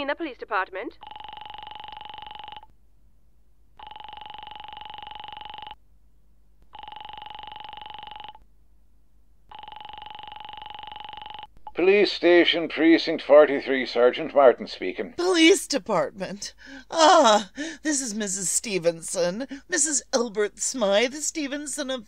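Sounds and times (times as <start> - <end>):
telephone ringing down the line: 1.0 - 2.7, 3.8 - 5.8, 6.8 - 8.4, 9.5 - 11.5.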